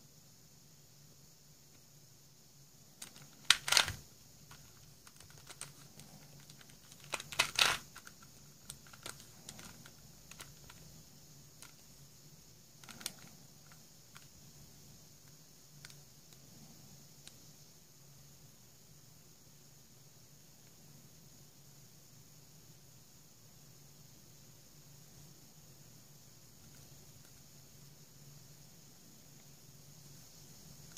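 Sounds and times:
plastic puzzle pieces clicking: 3.0s - 10.8s, 12.8s - 14.3s
puzzle turning clatter: 3.0s - 10.8s.

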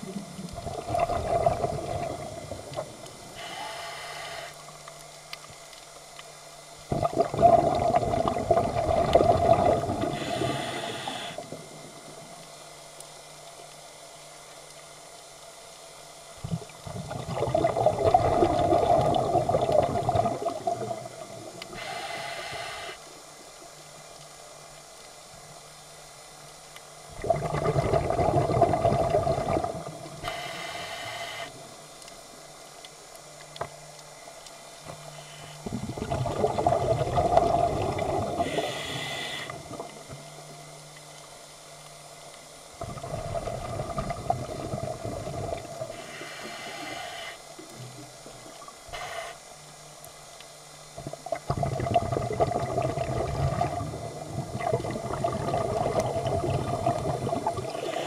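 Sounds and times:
exhaled bubbles underwater: 0.0s - 3.5s, 6.9s - 12.4s, 16.4s - 21.9s, 27.1s - 30.4s, 35.6s - 40.5s, 42.8s - 46.2s, 51.0s - 58.0s
regulator hiss: 1.7s - 5.4s, 9.6s - 14.6s, 20.5s - 24.7s, 29.8s - 33.4s, 34.1s - 36.0s, 37.4s - 40.8s, 45.0s - 51.0s, 57.3s - 58.0s.

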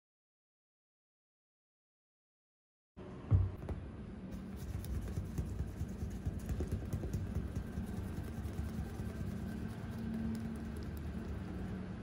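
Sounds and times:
clay bar scraping car paint: 4.4s - 11.2s.

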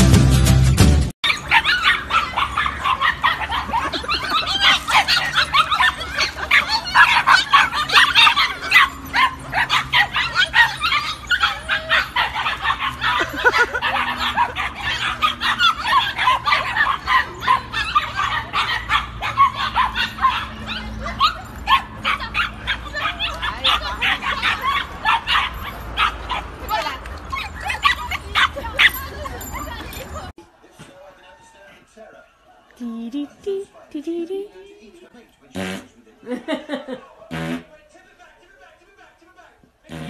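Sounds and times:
puppies yapping: 1.2s - 30.4s.

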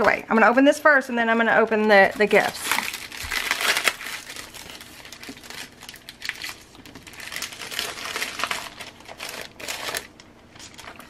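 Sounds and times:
paper rustling: 1.9s - 11.0s.

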